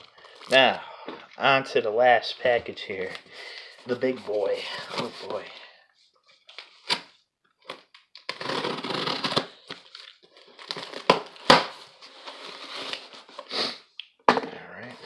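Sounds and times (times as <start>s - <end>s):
cutter slitting packing tape: 8.2s - 9.5s
tape and cardboard tearing: 8.2s - 10.0s, 10.6s - 11.8s.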